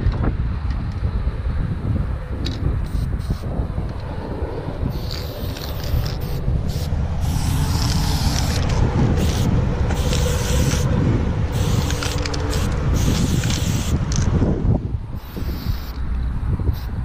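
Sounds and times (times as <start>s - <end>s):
wind on microphone: 0.0s - 17.0s
spray can hissing: 2.8s - 3.4s, 4.9s - 10.9s, 11.5s - 14.2s, 15.2s - 16.0s, 16.7s - 17.0s.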